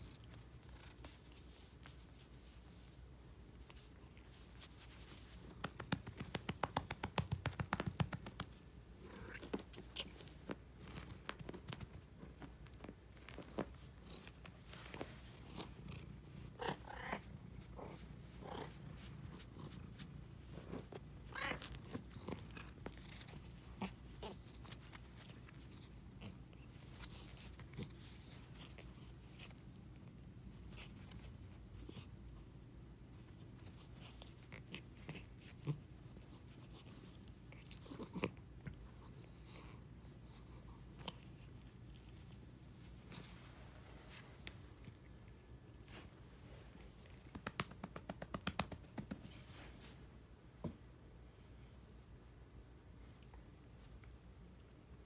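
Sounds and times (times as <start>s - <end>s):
patting cat: 0.0s - 50.8s
hands rubbing cat fur: 0.2s - 32.5s, 40.2s - 45.1s, 45.7s - 50.1s
cat purring: 5.3s - 45.7s.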